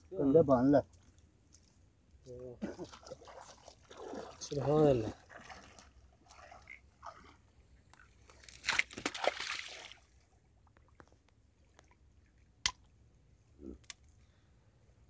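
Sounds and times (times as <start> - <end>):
water splashing: 0.9 - 12.9
wet net crunching: 8.2 - 10.0.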